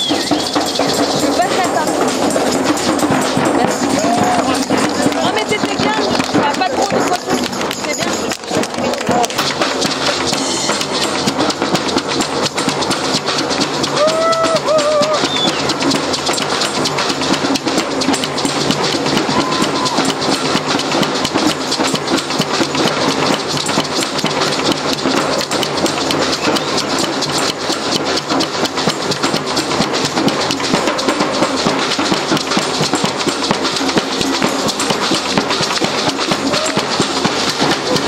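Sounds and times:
fast steady drumming: 0.0 - 38.0
brass street band playing: 10.1 - 11.7.

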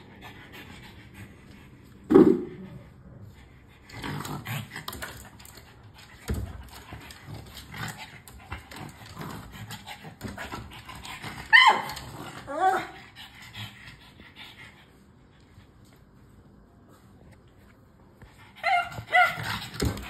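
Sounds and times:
dog breathing hard: 0.0 - 4.8
small dog noises: 3.7 - 15.1, 18.2 - 20.0.

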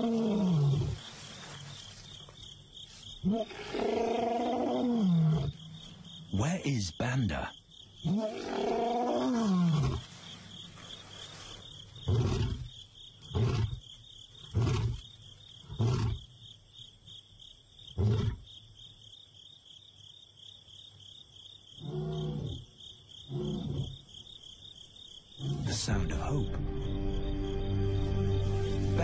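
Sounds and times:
lion roaring: 0.0 - 1.0, 3.2 - 5.6, 8.0 - 10.0, 12.0 - 12.7, 13.3 - 13.8, 14.4 - 15.0, 15.7 - 16.2, 21.8 - 22.6, 23.3 - 24.0, 25.4 - 25.9
insect trill: 0.0 - 29.0
lion grunts: 23.3 - 24.0, 25.4 - 25.9.

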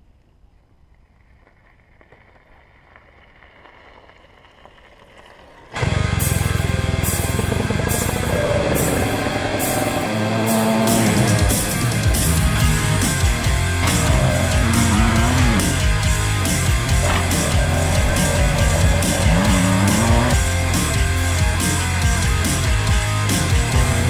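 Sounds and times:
heavy rock music: 5.8 - 24.0.

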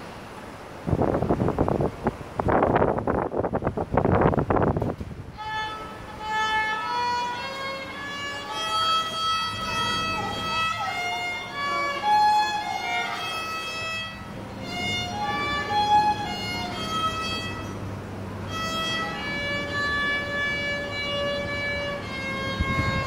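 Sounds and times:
solo violin melody: 5.3 - 23.0.

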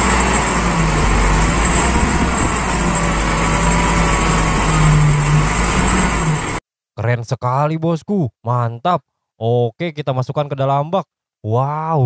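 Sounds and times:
diesel truck engine running: 0.0 - 6.6
hydraulic hoist: 0.0 - 6.6.

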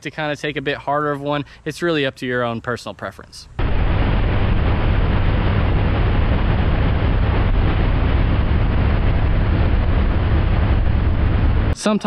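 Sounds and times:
boat engine low rumble: 3.6 - 11.8
rushing water: 3.6 - 11.8
rushing wind: 3.6 - 11.8.

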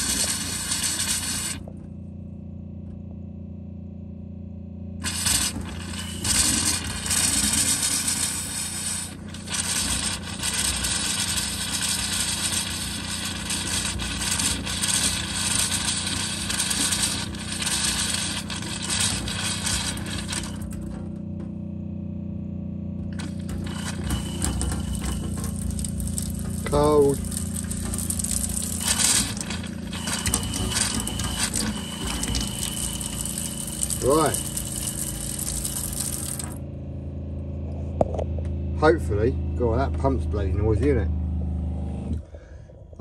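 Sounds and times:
water and air spitting from tap: 0.0 - 1.6, 5.0 - 20.9, 23.1 - 36.6
water pump humming: 0.0 - 1.8, 5.0 - 21.4, 23.0 - 36.6.

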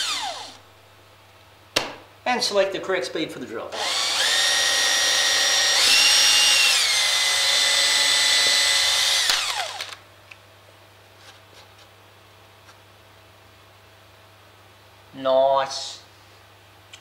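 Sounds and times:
electric drill whining: 0.0 - 0.6, 3.8 - 10.0.

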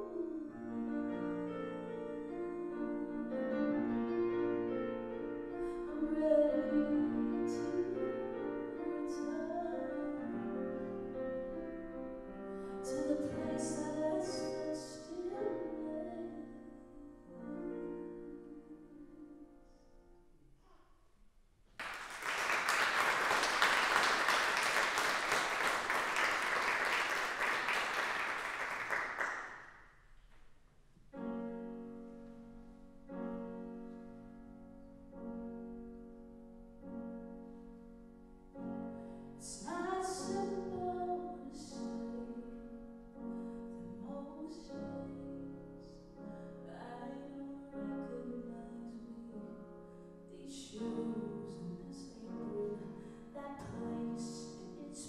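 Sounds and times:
grand piano playing: 0.0 - 20.2, 31.1 - 55.0
woman singing: 5.6 - 10.2, 12.8 - 17.6, 39.4 - 42.6, 43.7 - 45.6, 46.6 - 49.6, 50.3 - 55.0
audience applauding: 21.8 - 29.6.

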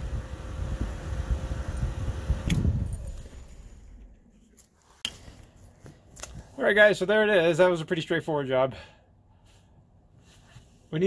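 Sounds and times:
rumbling handling noise: 0.2 - 6.6
keys jangling: 2.8 - 4.0.

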